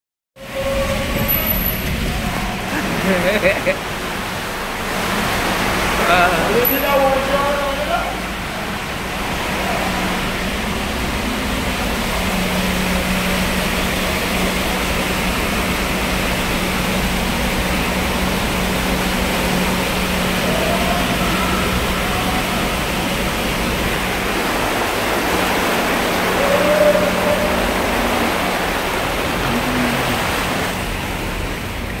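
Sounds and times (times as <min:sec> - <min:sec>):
tyres splashing through water: 0:00.5 - 0:32.0.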